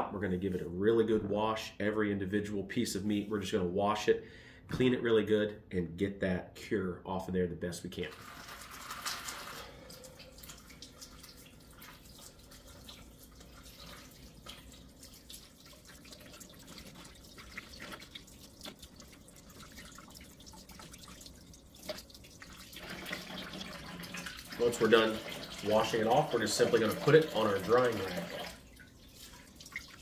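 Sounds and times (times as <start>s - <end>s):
faucet running into sink: 8.1s - 30.0s
water drips and splashes: 8.1s - 30.0s.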